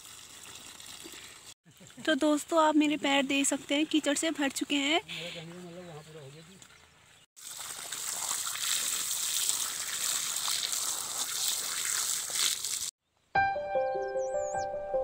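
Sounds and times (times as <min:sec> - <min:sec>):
hose water splashing on ground: 0:00.0 - 0:05.0, 0:06.5 - 0:13.0
music: 0:13.3 - 0:15.0.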